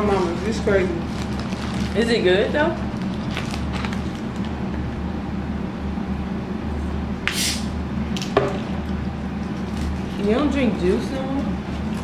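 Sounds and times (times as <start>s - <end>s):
steady low hum: 0.0s - 12.0s
bottle cap hiss of escaping gas: 7.3s - 7.7s.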